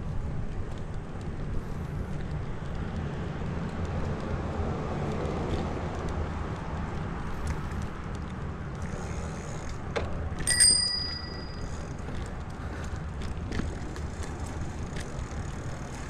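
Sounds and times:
wind and road rumble: 0.0s - 16.0s
bicycle bell ding: 10.4s - 11.9s.

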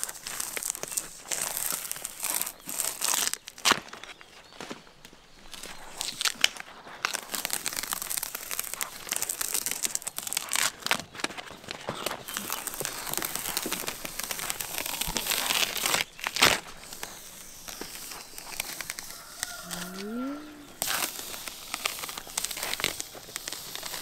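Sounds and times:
bark tearing off a trunk: 11.9s - 19.9s.

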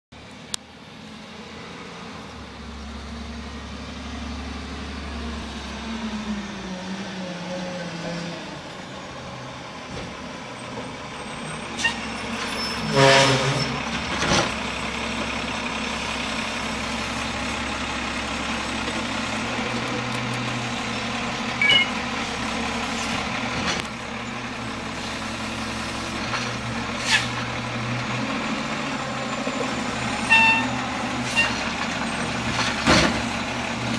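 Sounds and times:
diesel engine running: 0.2s - 33.9s
air brakes hissing: 11.2s - 13.8s, 27.0s - 27.4s.

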